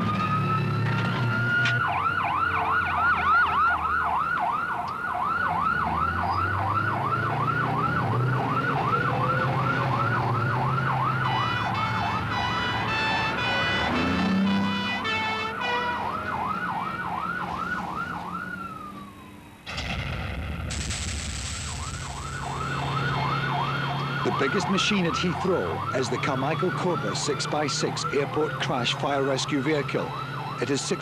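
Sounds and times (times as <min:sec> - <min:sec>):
warbling siren: 0:00.0 - 0:19.6, 0:21.5 - 0:31.0.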